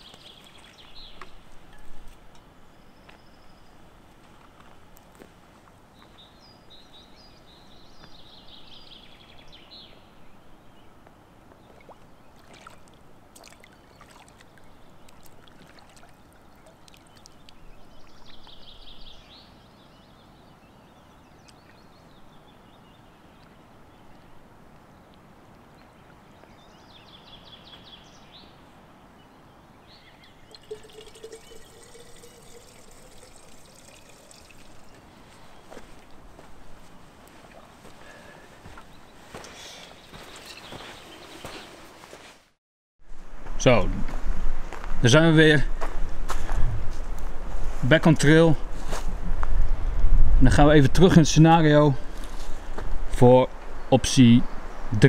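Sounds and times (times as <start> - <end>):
water trickling into a bottle: 11.8 - 17.6, 30.2 - 35.4.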